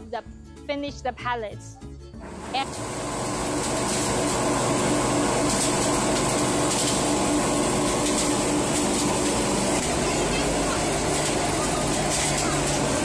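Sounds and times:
fan rushing air: 2.2s - 13.0s
machine mechanical hum: 2.2s - 13.0s
pellets pouring out: 2.6s - 13.0s.

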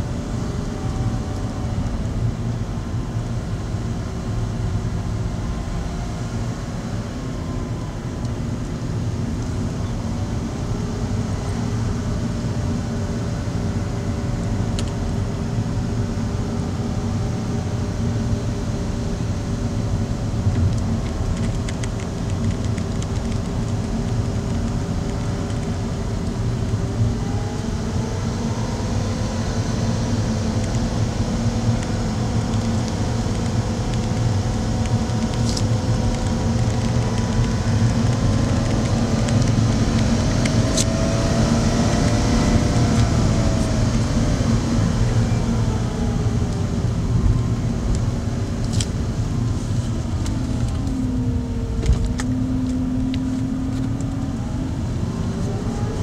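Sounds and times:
car engine: 0.0s - 56.0s
tyre and road noise: 17.3s - 56.0s.

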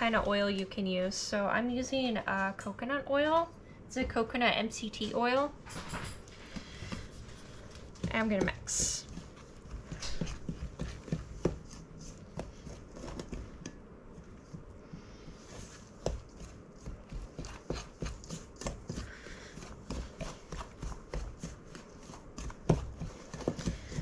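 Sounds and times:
utensil scraping mixing bowl: 6.4s - 14.4s, 15.4s - 24.0s.

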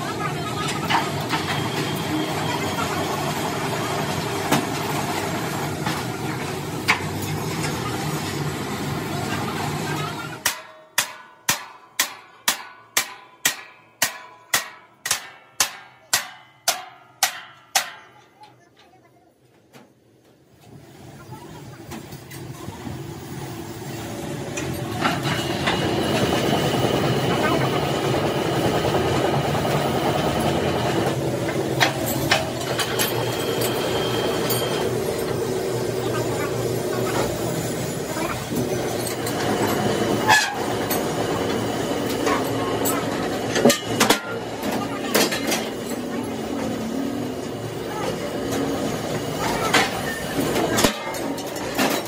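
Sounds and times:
factory machinery drone: 0.0s - 11.3s, 20.6s - 52.0s
hammer striking metal: 10.4s - 18.3s.

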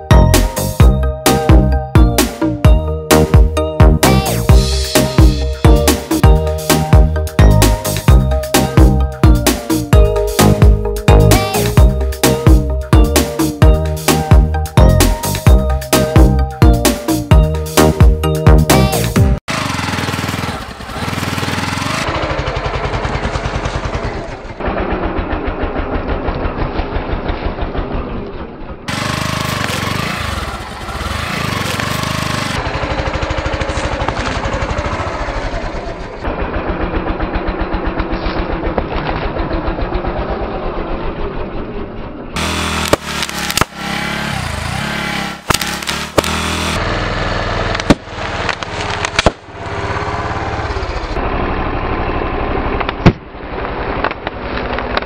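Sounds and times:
motorcycle engine running: 18.8s - 55.0s
objects bursting under a tyre: 42.4s - 44.3s, 45.3s - 46.8s, 47.7s - 49.5s.

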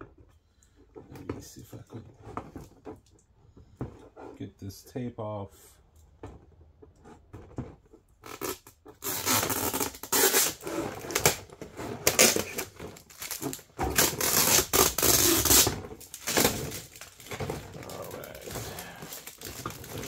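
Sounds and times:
plastic film crinkling: 8.2s - 20.0s.

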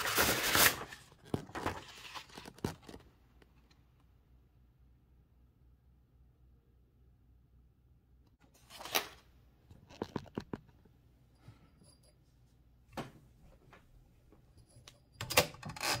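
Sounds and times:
paper rustling: 0.0s - 3.1s.

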